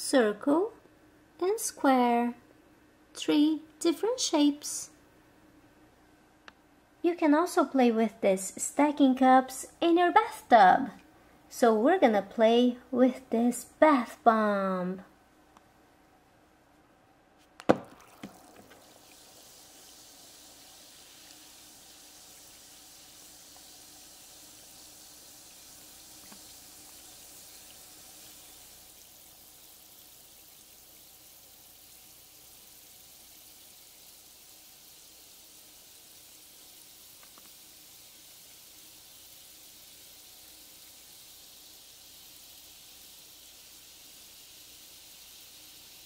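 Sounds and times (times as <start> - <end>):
bath bomb splashing into water: 17.6 - 23.8
fizzing hiss: 17.7 - 46.0.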